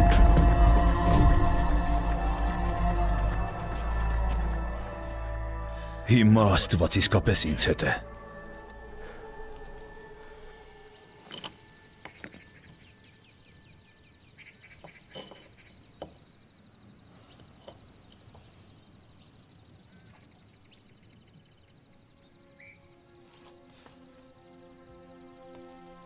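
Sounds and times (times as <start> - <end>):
insect trill: 0.0 - 26.0
bird chirps: 9.6 - 26.0.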